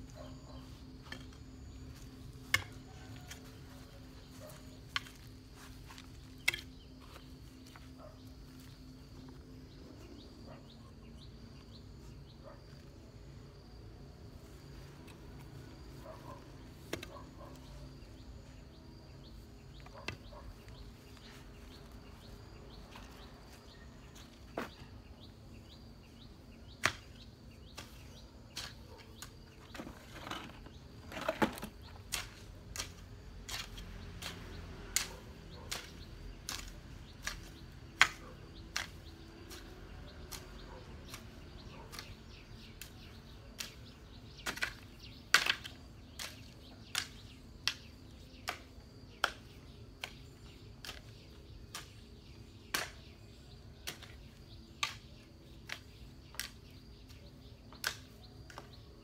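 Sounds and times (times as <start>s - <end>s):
hoe chopping into soil: 1.0s - 3.6s, 4.3s - 7.8s, 26.6s - 58.8s.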